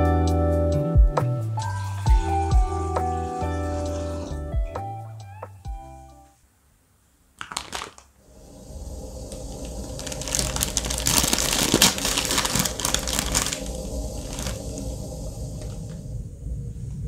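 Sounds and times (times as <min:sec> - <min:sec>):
plastic wrapper crinkling: 0:07.4 - 0:08.2, 0:09.3 - 0:14.9
low steady rumble: 0:08.2 - 0:17.0.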